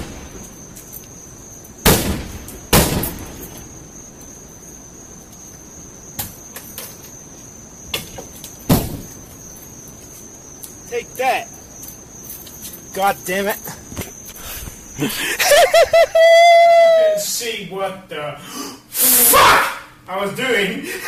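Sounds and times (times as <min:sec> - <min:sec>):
axe striking car body: 0:08.7 - 0:09.1.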